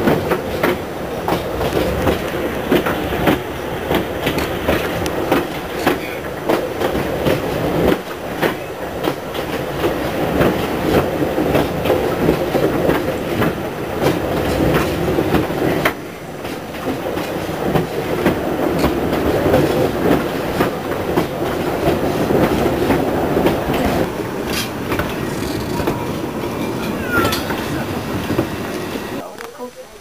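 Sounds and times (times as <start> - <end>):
wheels clicking over rail joints: 0.0 - 29.5
train carriage rumbling: 0.0 - 30.0.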